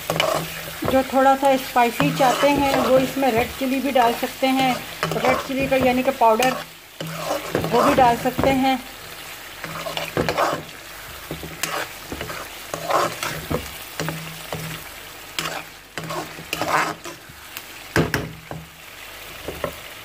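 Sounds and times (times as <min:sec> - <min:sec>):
spatula scraping metal pan: 0:00.0 - 0:08.8, 0:09.6 - 0:14.8, 0:15.4 - 0:17.3
chicken sizzling in oil: 0:00.0 - 0:20.0.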